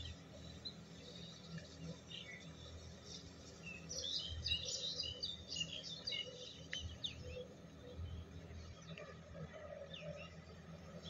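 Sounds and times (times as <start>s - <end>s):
small birds chirping: 0.0s - 7.5s.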